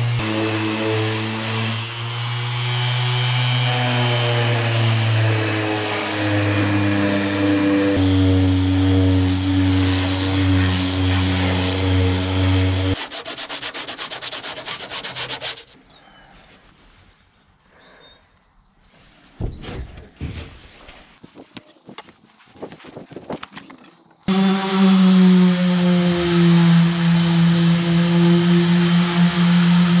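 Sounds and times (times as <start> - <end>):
orbital sander running: 0.0 - 15.8, 24.3 - 30.0
hand-sanding strokes: 0.2 - 15.8, 24.3 - 30.0.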